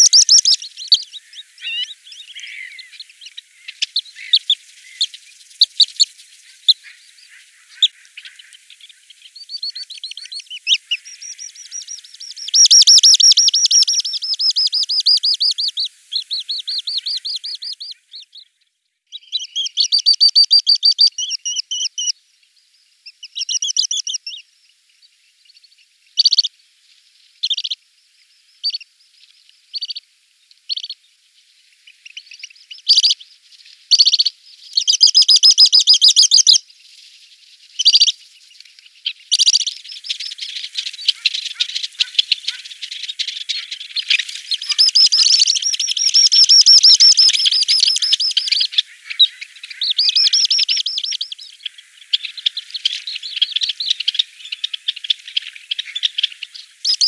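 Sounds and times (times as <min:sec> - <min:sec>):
bird trilling: 0:00.0 - 0:08.6, 0:09.5 - 0:18.2, 0:19.2 - 0:22.1, 0:23.2 - 0:24.4, 0:26.2 - 0:26.5, 0:33.9 - 0:36.6, 0:37.8 - 0:38.1, 0:39.3 - 0:42.8, 0:43.4 - 0:57.0
sharp bird call notes: 0:43.5 - 0:51.4.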